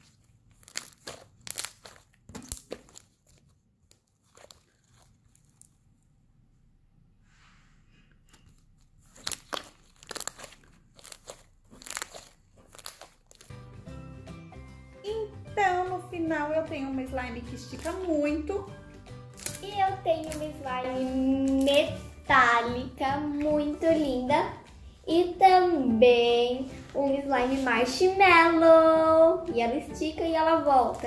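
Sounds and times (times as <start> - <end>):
slime squeezed crackling and popping: 0.0 - 5.8, 8.4 - 13.8, 17.6 - 18.2, 18.9 - 22.6.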